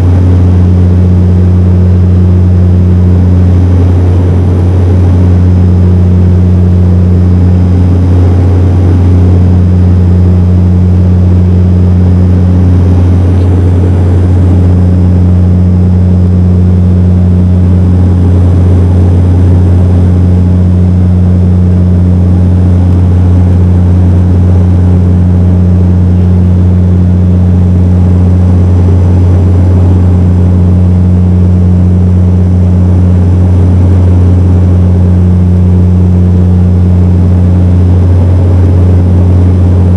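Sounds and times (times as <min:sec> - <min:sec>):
rushing air noise: 0:00.0 - 0:21.2
propeller engine drone: 0:00.0 - 0:39.9.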